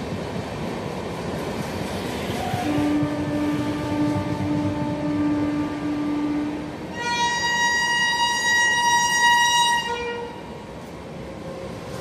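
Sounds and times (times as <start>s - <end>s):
passing train rumble: 0.0s - 12.0s
locomotive horn blast: 2.5s - 10.5s.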